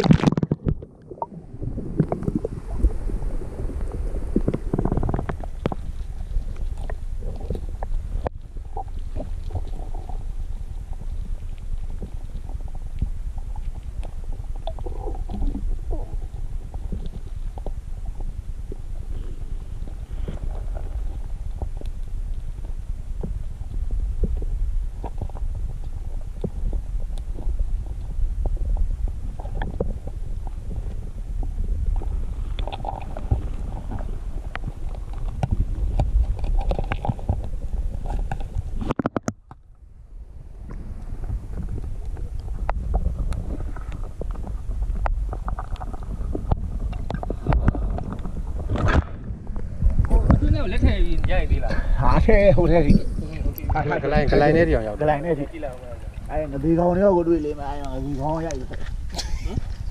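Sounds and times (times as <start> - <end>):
muffled underwater rumble: 0.0 - 59.9.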